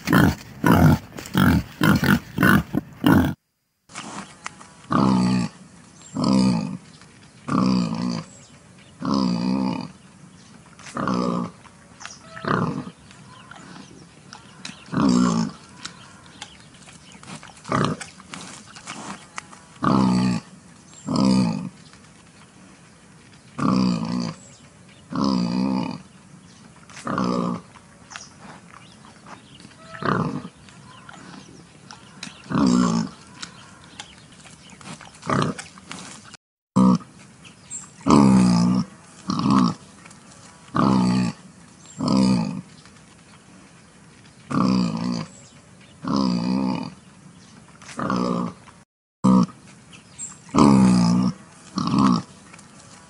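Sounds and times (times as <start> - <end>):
wild boar grunting: 0.0 - 3.4, 4.9 - 6.8, 7.4 - 8.4, 9.0 - 10.0, 10.8 - 21.8, 23.6 - 26.2, 26.9 - 36.2, 36.8 - 37.1, 38.0 - 42.7, 44.5 - 45.4, 46.0 - 47.0, 47.8 - 48.6, 49.2 - 49.6, 50.4 - 53.0.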